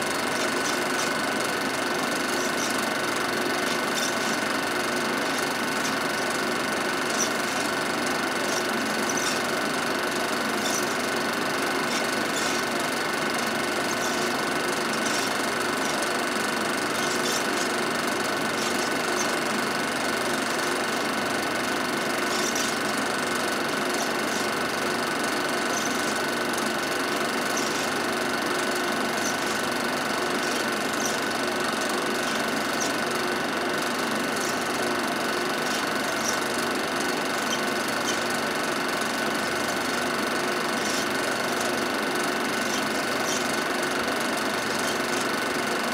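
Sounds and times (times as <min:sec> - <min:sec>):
film projector whirring: 0:00.0 - 0:45.9.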